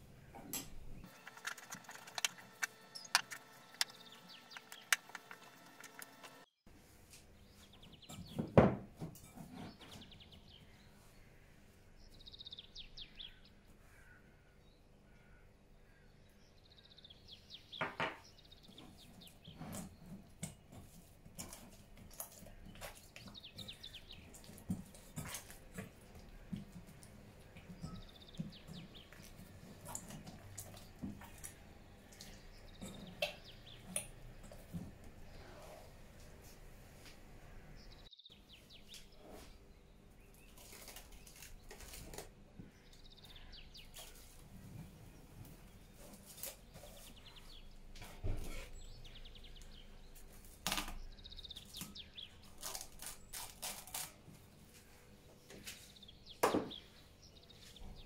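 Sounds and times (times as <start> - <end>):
dough squishing: 18.6 - 36.6.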